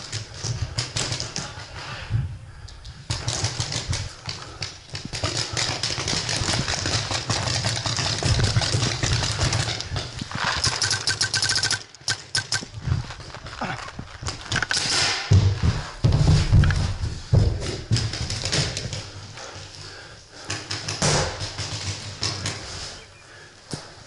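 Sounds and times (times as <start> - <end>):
wind rumbling on microphone: 4.9 - 10.8, 12.5 - 14.5
gear rattling: 4.9 - 14.8
footsteps on dirt: 12.4 - 14.7.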